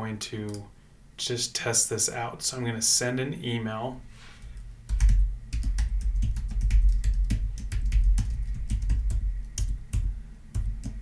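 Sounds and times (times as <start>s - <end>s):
typing on computer keyboard: 4.5s - 11.0s.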